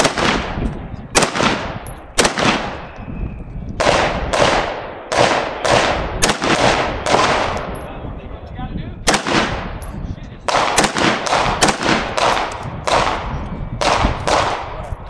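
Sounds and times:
rifle shots with echo: 0:00.0 - 0:03.0, 0:03.8 - 0:07.9, 0:09.0 - 0:14.9.

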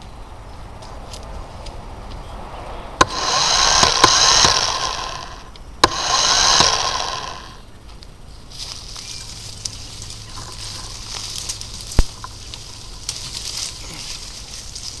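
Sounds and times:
sharp click: 0:03.0 - 0:07.6
leaves and twigs rustling: 0:07.2 - 0:15.0.

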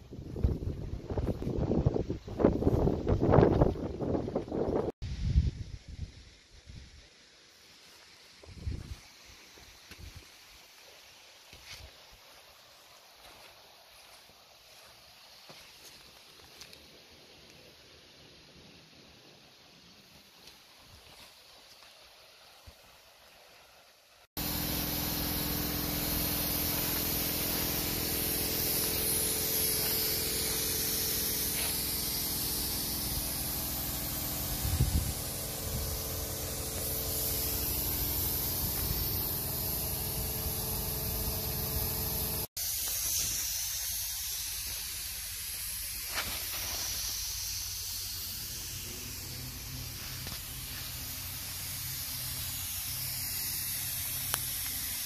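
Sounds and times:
sandblaster hissing: 0:24.3 - 0:55.0.

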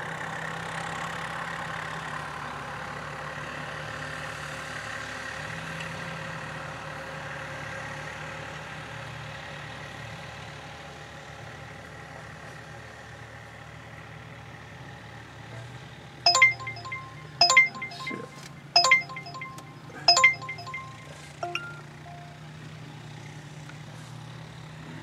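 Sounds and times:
bright chiming tones: 0:16.3 - 0:22.4.

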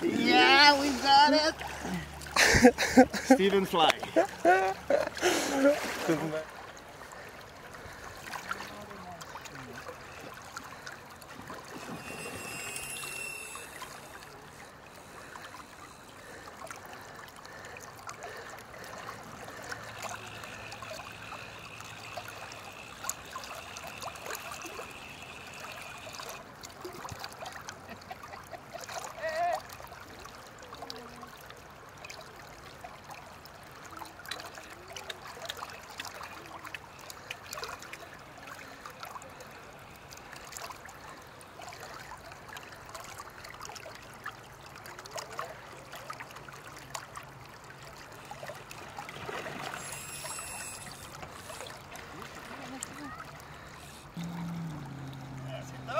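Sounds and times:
river water lapping and trickling: 0:00.0 - 0:55.9
faint steady high tone: 0:11.8 - 0:14.7, 0:49.6 - 0:51.8.

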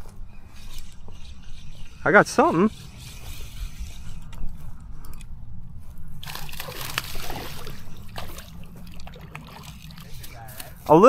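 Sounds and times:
water splashing and sloshing: 0:06.2 - 0:11.0.

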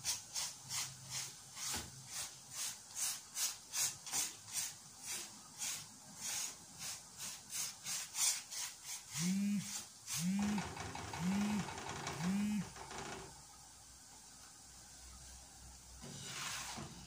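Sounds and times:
brush rubbing on bread: 0:00.0 - 0:10.3.

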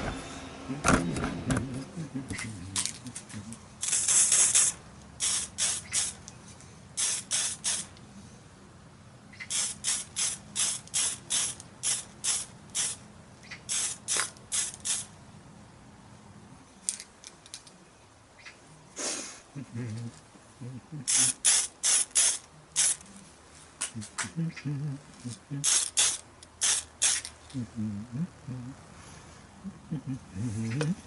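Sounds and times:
aerosol spray can squirts: 0:03.8 - 0:06.2, 0:07.0 - 0:07.9, 0:09.4 - 0:13.0, 0:13.6 - 0:15.1, 0:21.1 - 0:23.0, 0:25.6 - 0:27.3.

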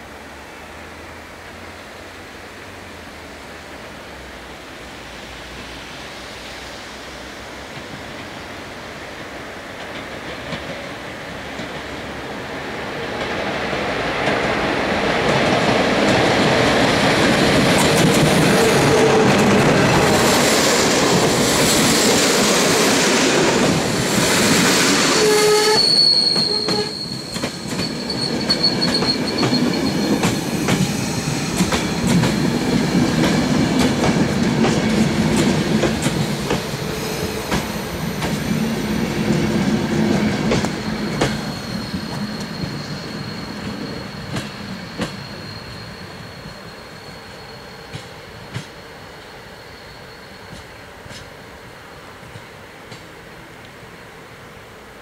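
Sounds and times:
electric locomotive passing: 0:00.0 - 0:55.0
high wheel squeal: 0:23.8 - 0:32.7, 0:40.6 - 0:50.8.

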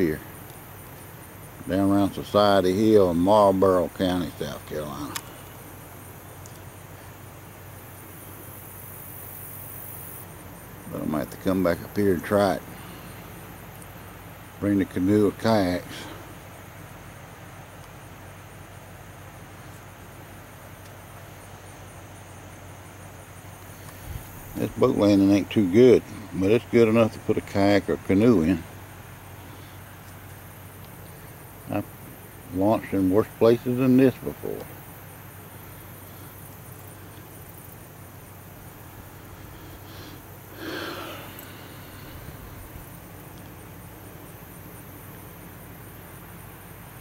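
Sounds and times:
faint hiss and low hum: 0:00.0 - 0:47.0
insects chirping: 0:00.0 - 0:47.0
sniff and breath out: 0:39.3 - 0:42.8.

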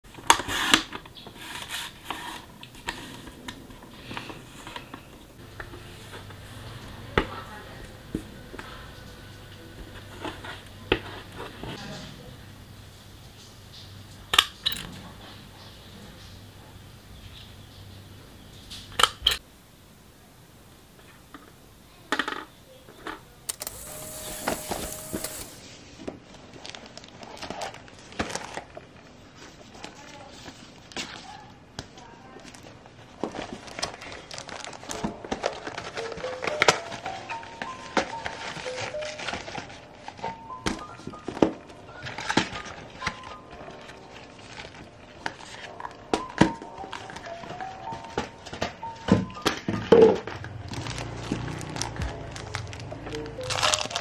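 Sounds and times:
paper rustling: 0:23.6 - 0:25.6, 0:32.4 - 0:49.0, 0:50.3 - 0:54.0.

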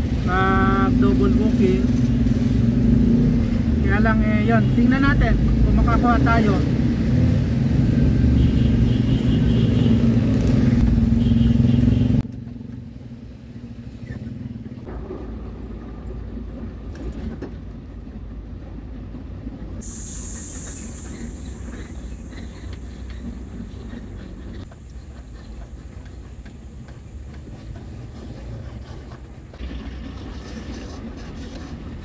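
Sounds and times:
engine and road drone: 0:00.0 - 0:32.0
road and traffic rumble: 0:00.0 - 0:32.0
high hiss: 0:19.8 - 0:24.2.

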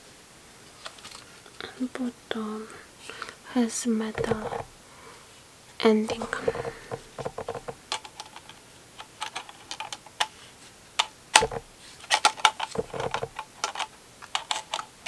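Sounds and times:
plastic and metal handling: 0:04.1 - 0:04.8, 0:06.1 - 0:08.5, 0:11.4 - 0:14.9
camera lens clicks and taps: 0:04.2 - 0:04.7, 0:06.1 - 0:07.8, 0:11.4 - 0:13.8.

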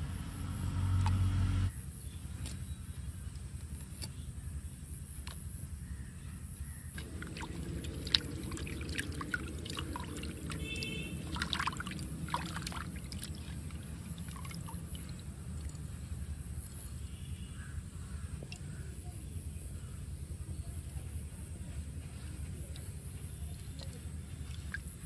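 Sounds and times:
water splashing in a pot: 0:06.9 - 0:16.0, 0:22.8 - 0:25.0
low rumble: 0:07.0 - 0:16.8.

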